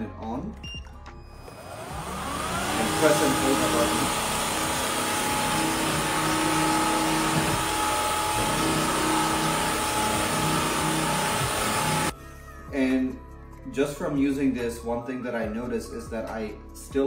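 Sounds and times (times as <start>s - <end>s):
wet-dry vacuum running: 1.4s - 12.1s.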